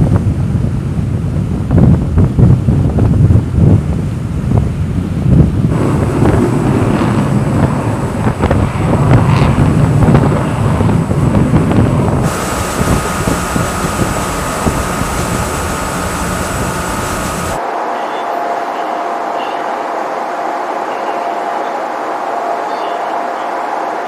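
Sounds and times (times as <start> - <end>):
wind buffeting microphone: 0.0 - 17.6
low engine rumble: 5.7 - 17.6
steady high hum: 12.0 - 18.0.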